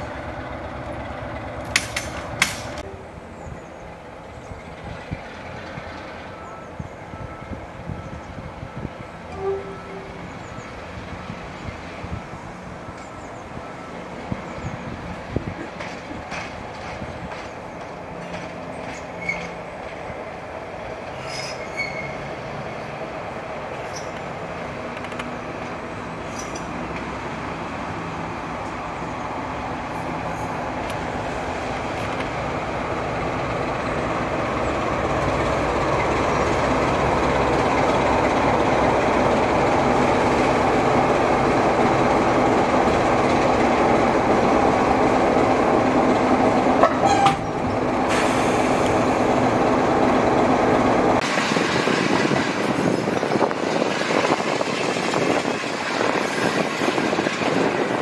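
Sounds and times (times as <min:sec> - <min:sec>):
diesel locomotive engine running: 0:00.0 - 0:58.0
train carriage rolling: 0:00.0 - 0:58.0
wind rushing past window: 0:47.4 - 0:58.0.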